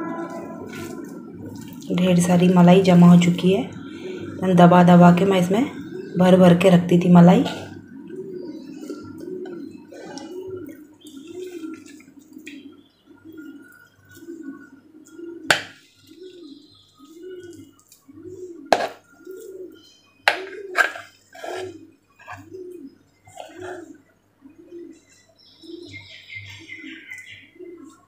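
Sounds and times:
pigeon cooing: 0.0 - 28.0.

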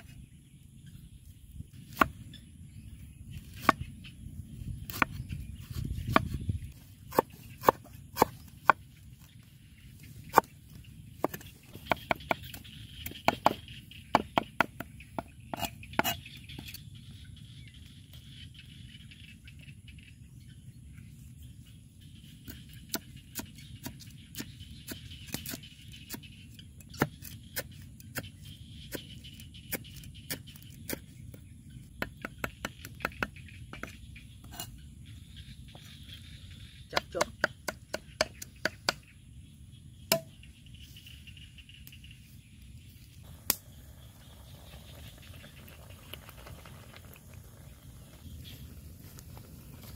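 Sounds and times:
cleaver chopping on wooden block: 11.2 - 16.2, 37.0 - 39.0, 40.1 - 40.3.

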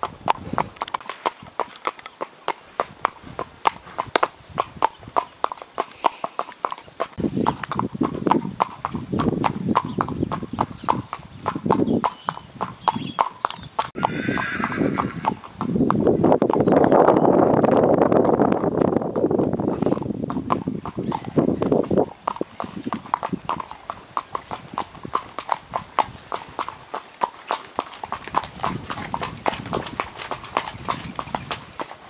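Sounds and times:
hooves clip-clopping on wet tarmac: 0.0 - 11.8, 16.6 - 32.0.

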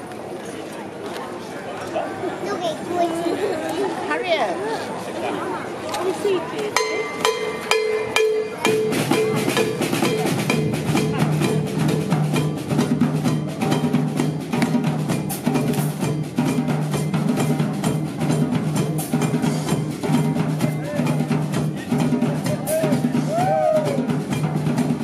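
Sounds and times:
street brass band playing: 6.1 - 25.0
pounding drumbeat: 6.8 - 25.0.

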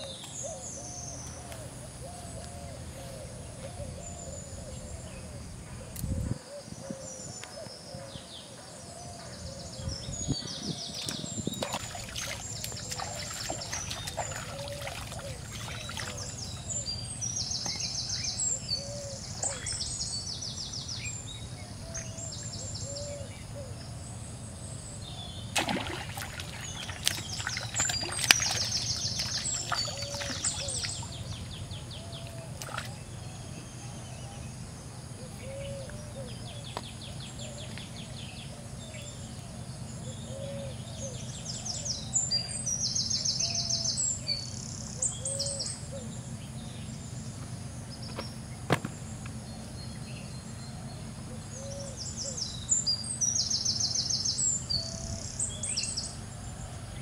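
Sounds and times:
birds chirping in high trills: 6.6 - 23.8, 24.4 - 57.0
fish thrashing splashes: 11.2 - 16.4, 25.5 - 31.1.

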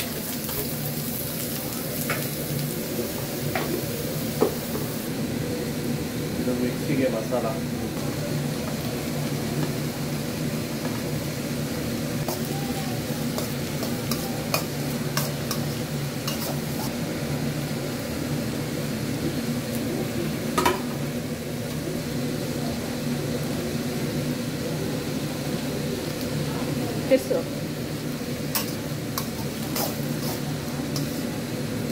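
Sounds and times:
vegetables sizzling in a pan: 0.0 - 31.9
utensil clinking and scraping pan: 13.3 - 16.9, 28.5 - 31.3.

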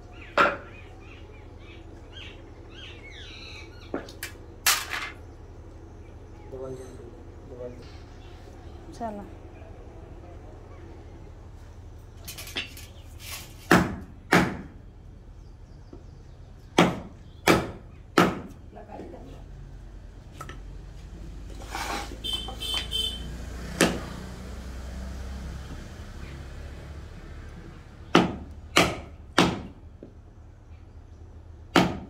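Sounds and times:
hammer striking chisel: 28.1 - 29.7.

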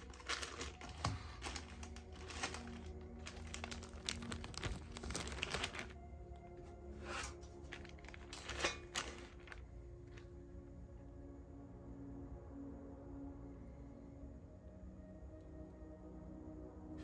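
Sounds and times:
packaging crinkling: 0.0 - 10.2
soft background music: 0.0 - 17.0.

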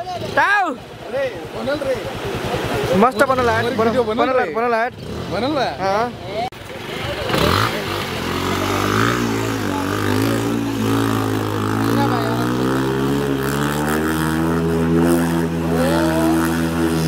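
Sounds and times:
motorcycle engine revving: 0.0 - 17.0
rushing floodwater: 0.0 - 17.0.

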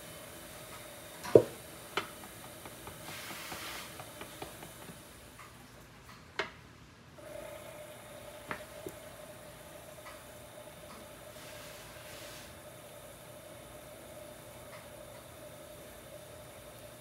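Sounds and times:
faint steady hum: 0.0 - 17.0
brief hiss: 11.3 - 12.6.

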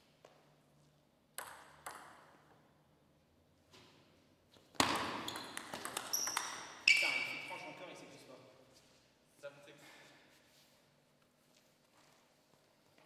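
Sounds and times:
table tennis ball hits: 1.4 - 2.6, 4.8 - 6.8.

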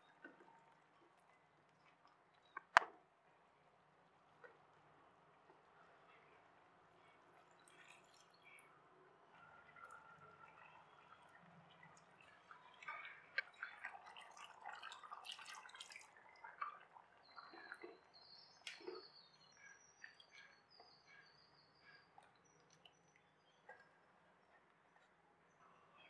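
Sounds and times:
wet plops and squelches: 12.0 - 19.1.

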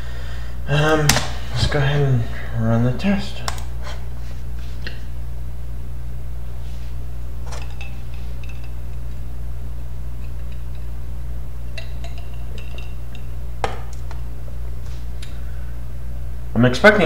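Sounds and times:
computer hum: 0.0 - 17.0.

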